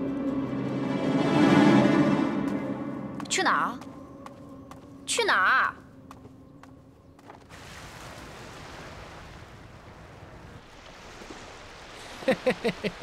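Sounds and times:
wind and sea rushing: 0:00.0 - 0:13.0
person laughing: 0:12.0 - 0:13.0.

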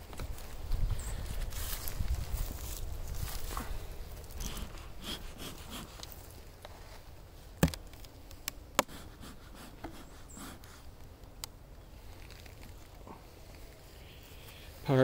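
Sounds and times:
sharp knocks and clicks: 0:07.6 - 0:07.8.

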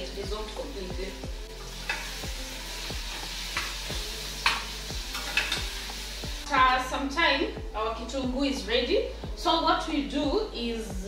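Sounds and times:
onions sizzling in a pan: 0:00.0 - 0:08.2
spoon scraping and tapping pan: 0:01.8 - 0:02.2, 0:04.4 - 0:05.8.

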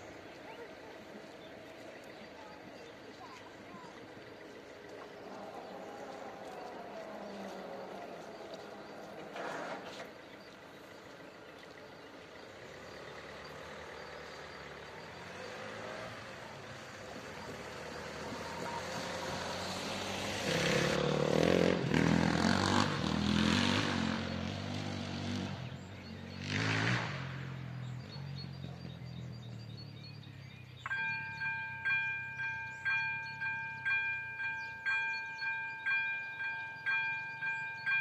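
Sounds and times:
bus driving over rails: 0:00.0 - 0:38.0
van passing: 0:00.0 - 0:38.0
vehicle noise rushing past: 0:12.2 - 0:30.8.

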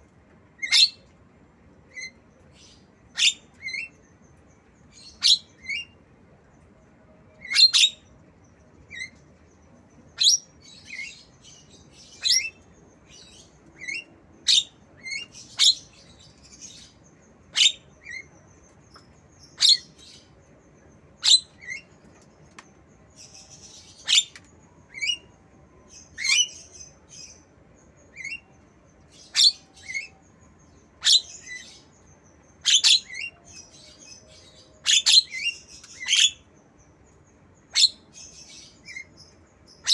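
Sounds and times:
bird shrill high chirps: 0:29.1 - 0:30.4.

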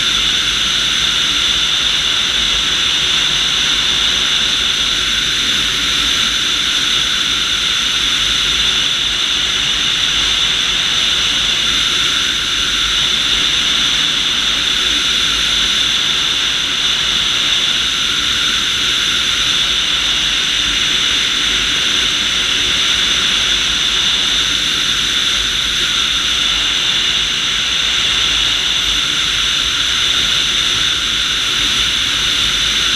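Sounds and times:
rush of air in flight: 0:00.0 - 0:32.9.

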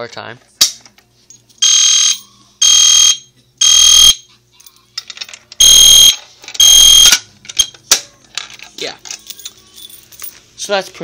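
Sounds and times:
fire alarm horn blasts: 0:01.6 - 0:04.2, 0:05.6 - 0:07.2.

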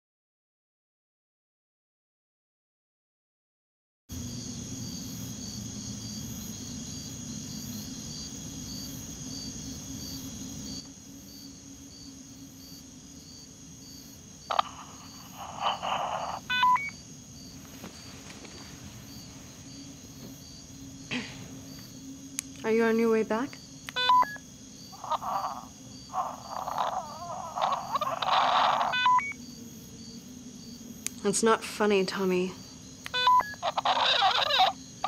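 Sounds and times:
crickets chirping: 0:04.1 - 0:35.0
electronic beeps: 0:14.5 - 0:17.0, 0:23.9 - 0:24.4, 0:27.6 - 0:29.4, 0:33.1 - 0:34.8
walkie-talkie static hiss: 0:14.5 - 0:17.0, 0:22.5 - 0:29.4, 0:33.0 - 0:34.8
walkie-talkie click: 0:33.0 - 0:34.7.

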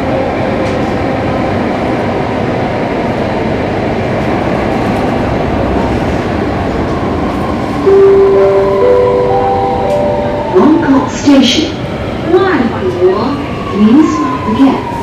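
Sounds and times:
train wheels on rails: 0:00.0 - 0:08.0.

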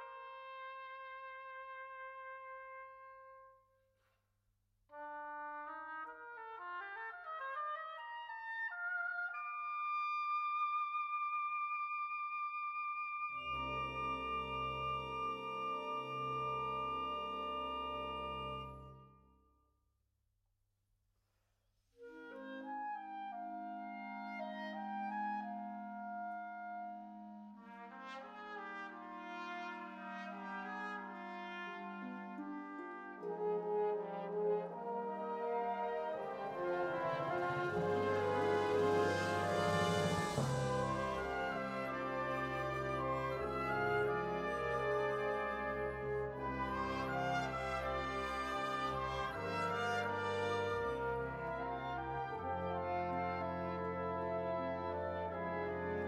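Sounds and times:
woodwinds rising notes: 0:12.6 - 0:19.0, 0:32.0 - 0:55.8
wind band music: 0:13.3 - 0:19.1, 0:22.3 - 0:56.0.

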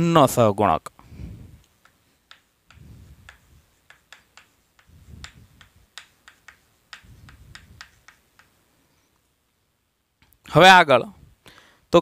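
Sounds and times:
chalk clicking on blackboard: 0:01.6 - 0:08.7.

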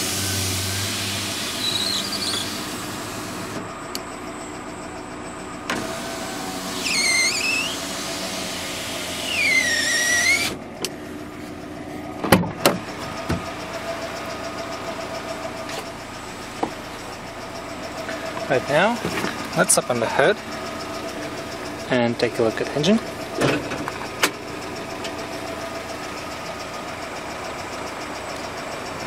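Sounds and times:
power window motor whining: 0:00.0 - 0:04.1, 0:05.6 - 0:11.0
truck engine idling: 0:00.0 - 0:29.0.

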